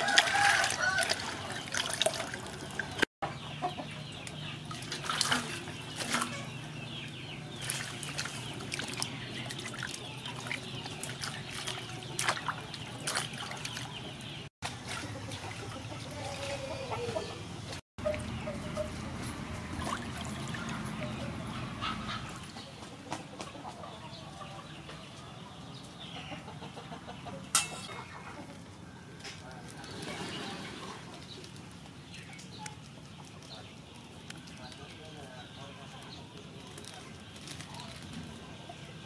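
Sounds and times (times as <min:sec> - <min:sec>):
water trickling: 0:00.0 - 0:03.1, 0:07.4 - 0:14.0, 0:18.0 - 0:21.3
chickens clucking: 0:00.0 - 0:39.0
hands swishing vegetables in water: 0:04.8 - 0:06.3, 0:07.6 - 0:13.9.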